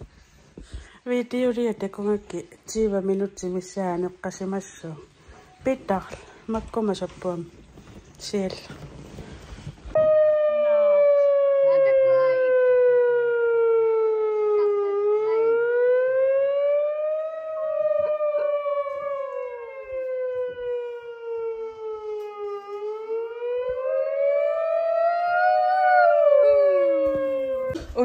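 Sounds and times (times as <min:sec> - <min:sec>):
siren wailing: 0:09.9 - 0:28.0.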